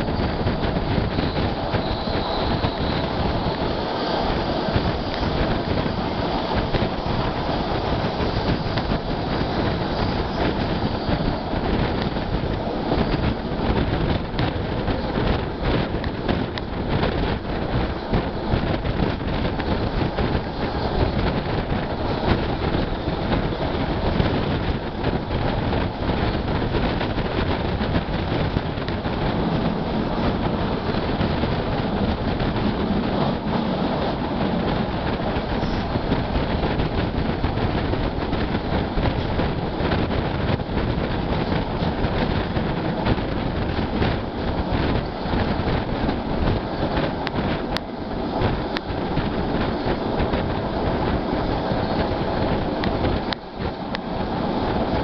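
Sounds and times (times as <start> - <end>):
rushing air: 0.0 - 55.0
train wheels rumbling on rails: 0.0 - 55.0.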